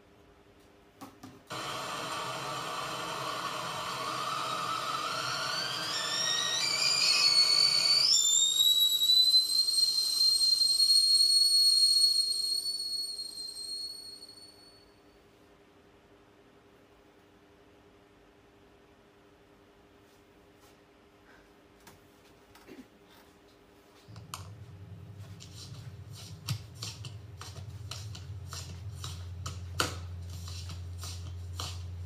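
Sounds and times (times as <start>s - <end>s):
hiss rising into high whistle: 1.5s - 14.8s, 24.1s - 30.9s.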